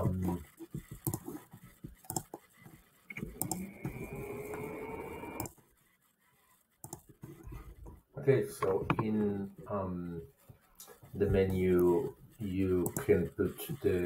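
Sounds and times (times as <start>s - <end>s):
steady whirring: 0.0s - 14.0s
faint rising whine: 3.2s - 5.5s.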